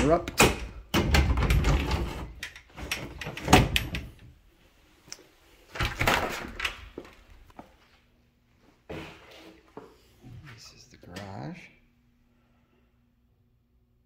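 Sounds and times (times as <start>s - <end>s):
door banging: 0.0s - 4.2s
door rattling: 0.0s - 4.3s.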